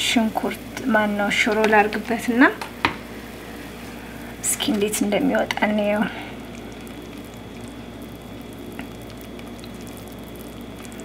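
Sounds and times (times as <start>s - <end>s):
stew bubbling and sizzling: 0.0s - 11.0s.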